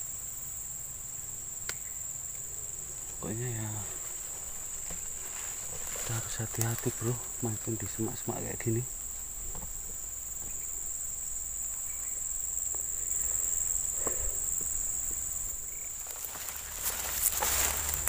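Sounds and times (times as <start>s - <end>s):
insects chirring: 0.0s - 18.0s
footsteps through dense grass: 2.9s - 8.8s, 13.7s - 18.0s.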